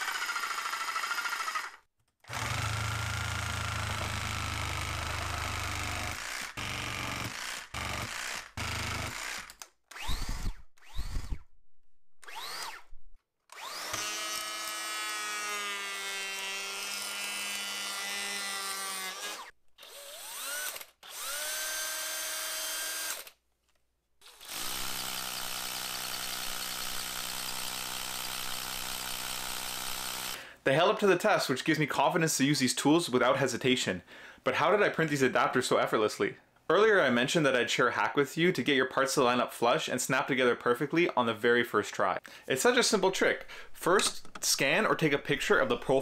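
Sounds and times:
reciprocating saw cutting wood: 0.0s - 11.4s, 12.2s - 12.9s, 13.5s - 23.3s
hammer drill drilling into concrete: 0.0s - 11.5s, 12.2s - 12.9s, 13.5s - 23.4s, 24.2s - 30.4s
electric planer shaving board: 2.3s - 9.4s, 13.6s - 19.5s.

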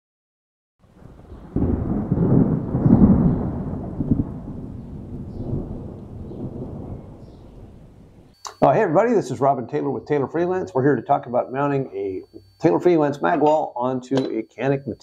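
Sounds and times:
deep rolling rumble: 0.8s - 8.3s.

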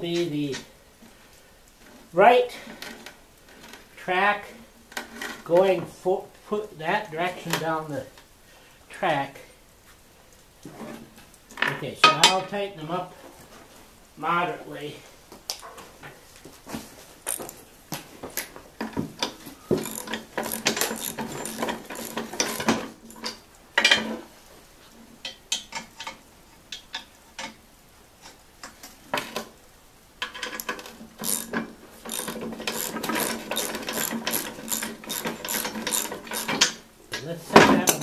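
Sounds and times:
ratchet wrench clicking: 17.3s - 17.6s, 19.8s - 22.8s, 31.2s - 36.8s
metal parts knocking: 19.8s - 23.3s, 30.6s - 36.8s.

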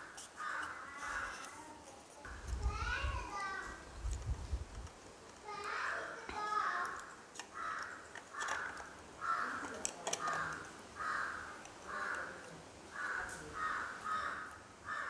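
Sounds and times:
crow cawing: 0.0s - 1.5s, 7.5s - 15.0s
plastic camera parts clicking: 6.9s - 8.9s, 9.6s - 10.7s.

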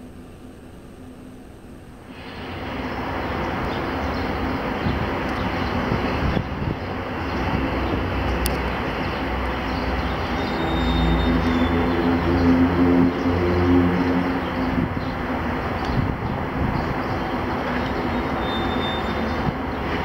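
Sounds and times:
deep engine hum: 0.0s - 20.0s
train rumbling past: 2.0s - 20.0s
thin high squeal: 18.4s - 19.3s.

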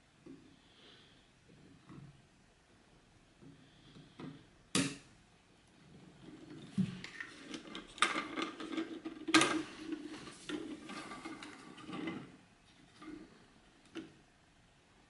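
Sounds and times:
plastic parts clicking and knocking: 6.6s - 12.3s.

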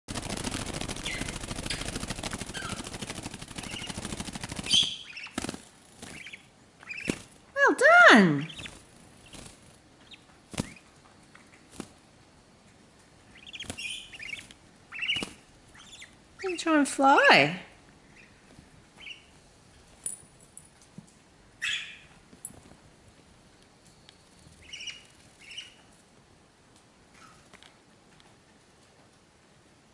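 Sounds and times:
bird wings flapping: 0.1s - 7.5s, 8.5s - 10.9s, 11.7s - 12.0s, 13.4s - 16.1s
high chick chirps: 4.6s - 5.4s, 6.0s - 11.7s, 13.3s - 16.8s, 18.0s - 19.4s, 21.6s - 22.2s.

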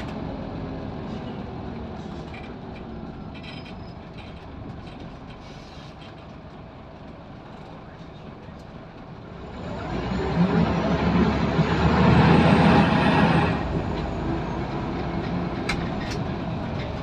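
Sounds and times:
bus diesel engine revving: 0.0s - 3.3s, 9.2s - 17.0s.

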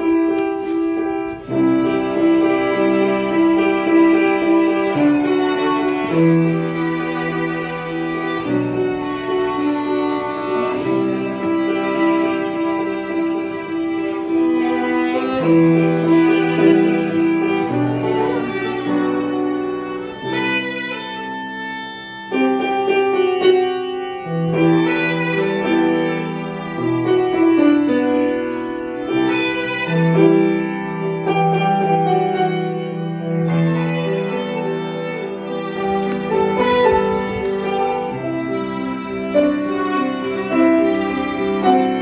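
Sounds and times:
background music with held notes: 0.0s - 23.9s, 35.5s - 42.0s.

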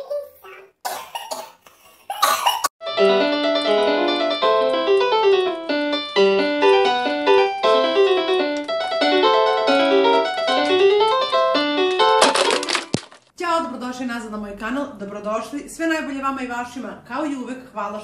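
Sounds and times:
person coughing: 0.9s - 2.7s
digital piano broken chords: 2.8s - 13.0s.

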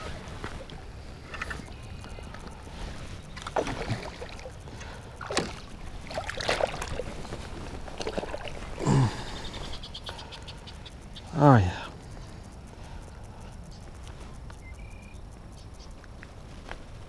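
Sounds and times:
fish splashing at surface: 3.4s - 4.5s.

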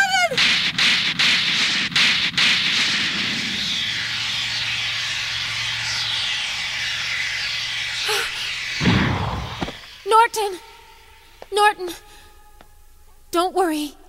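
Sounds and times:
steady rushing noise: 0.4s - 11.5s
low hum: 2.3s - 11.5s.

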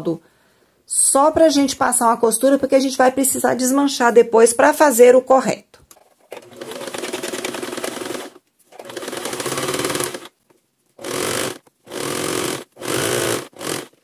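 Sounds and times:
sewing machine stitching: 6.3s - 10.3s, 11.0s - 14.0s.

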